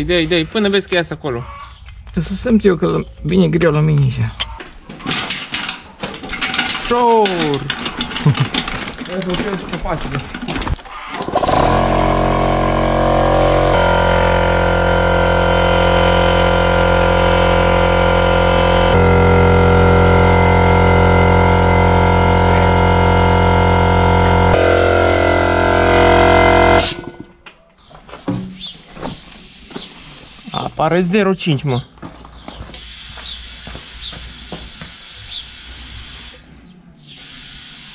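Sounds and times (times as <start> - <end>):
electric air compressor running: 11.2 - 27.2, 32.8 - 36.5, 37.2 - 37.9.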